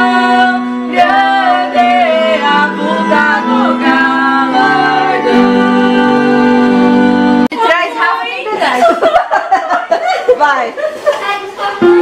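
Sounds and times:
woman singing a hymn: 0:00.0 - 0:07.5
digital piano: 0:00.0 - 0:08.2.

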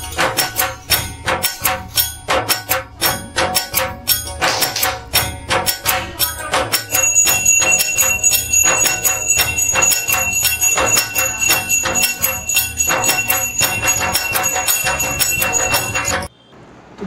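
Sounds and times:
small brass hand bell ringing rapidly: 0:05.1 - 0:16.3.

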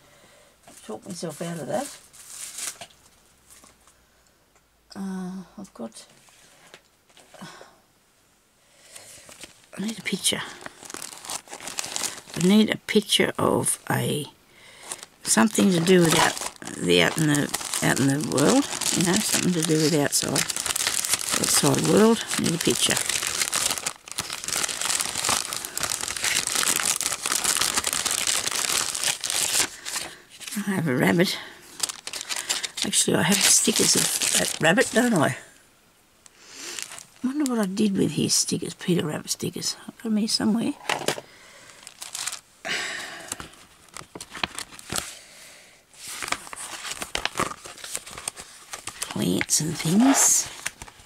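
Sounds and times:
plastic sleeve crinkling: 0:00.8 - 0:03.8, 0:09.2 - 0:35.4, 0:36.6 - 0:37.6, 0:41.7 - 0:42.5, 0:43.3 - 0:45.2, 0:46.0 - 0:51.0
paper rustling: 0:01.3 - 0:03.8, 0:09.2 - 0:12.6, 0:14.8 - 0:30.6, 0:31.8 - 0:35.3, 0:41.8 - 0:42.4, 0:43.4 - 0:45.1, 0:46.0 - 0:51.0.

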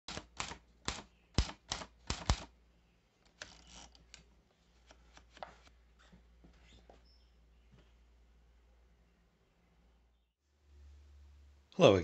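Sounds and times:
typewriter keys striking: 0:00.1 - 0:02.5.

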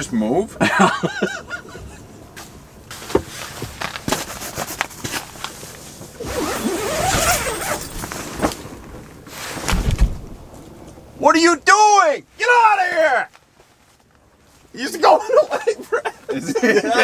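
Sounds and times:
clothing rustling: 0:02.4 - 0:11.0, 0:13.3 - 0:14.7
zipper being pulled: 0:06.2 - 0:08.5.

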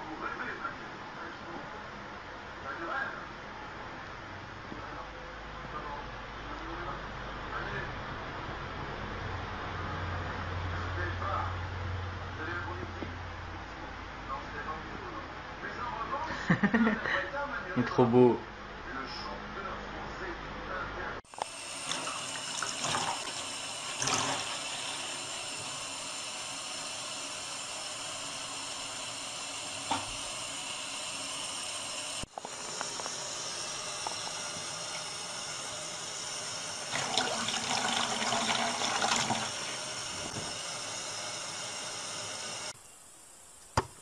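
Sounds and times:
water running into basin: 0:21.3 - 0:42.8.

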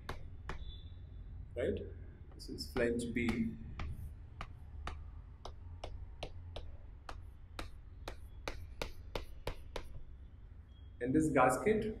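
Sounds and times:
chalk ticking on blackboard: 0:00.0 - 0:00.8, 0:02.3 - 0:10.1.

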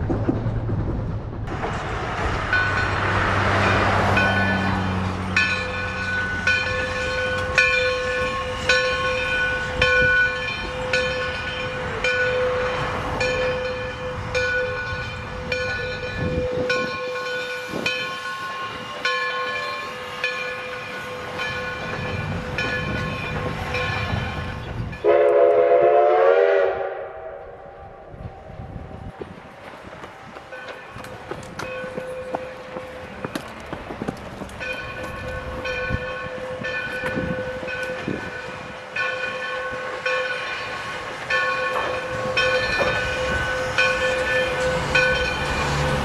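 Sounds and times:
locomotive bell ringing: 0:02.5 - 0:25.3, 0:30.5 - 0:46.0
steam locomotive chime whistle: 0:23.8 - 0:28.1.

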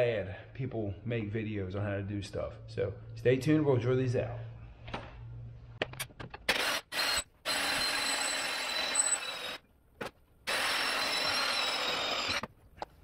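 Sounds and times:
power drill whining: 0:06.5 - 0:09.6, 0:10.4 - 0:12.5.

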